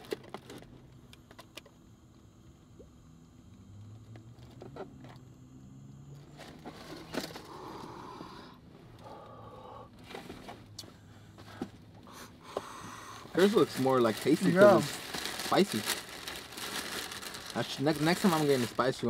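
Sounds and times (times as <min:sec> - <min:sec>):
breathy exhaling: 0:02.7 - 0:10.2, 0:10.8 - 0:13.9.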